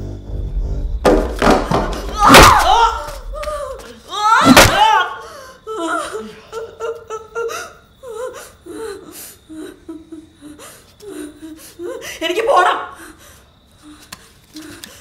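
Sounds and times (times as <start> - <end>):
person crying out: 2.0 - 5.2.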